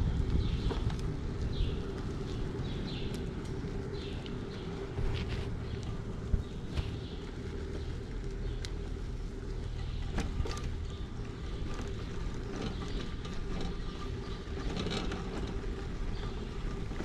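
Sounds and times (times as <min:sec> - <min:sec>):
wind on microphone: 0:00.0 - 0:07.2
bike clicks and rattles: 0:00.0 - 0:17.0
bike tyres rumbling on dirt: 0:00.0 - 0:17.0.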